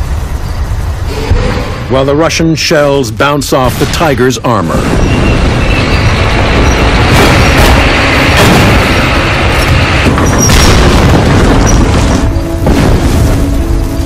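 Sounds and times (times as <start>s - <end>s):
continuous loud rumble: 0.0s - 14.0s
shell explosions: 3.6s - 14.0s
tank gunfire booms: 3.7s - 13.8s.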